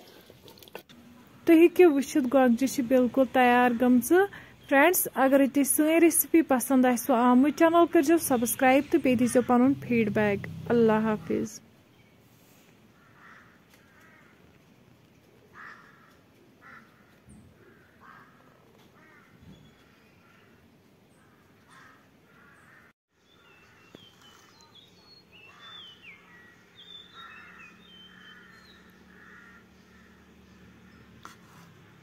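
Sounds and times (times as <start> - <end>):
faint crows cawing: 12.9 - 14.8, 15.4 - 24.7, 25.3 - 32.0.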